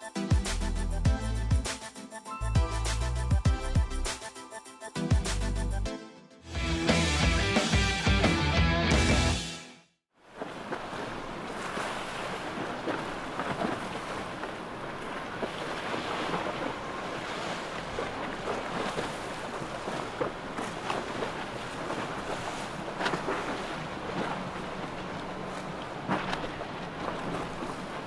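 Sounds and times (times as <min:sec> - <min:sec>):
water rushing from bow wave: 0:10.2 - 0:28.0
water splashes: 0:10.2 - 0:28.0.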